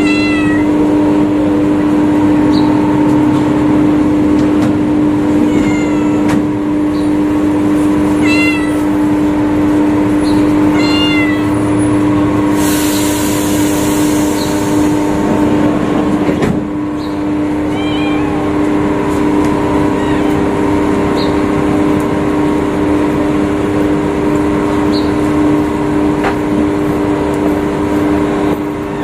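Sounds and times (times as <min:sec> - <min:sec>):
kitten meowing: 0:00.0 - 0:00.9, 0:05.3 - 0:06.5, 0:08.1 - 0:09.1, 0:10.3 - 0:11.7, 0:17.7 - 0:18.6, 0:19.8 - 0:20.5
loud steady hum: 0:00.0 - 0:29.0.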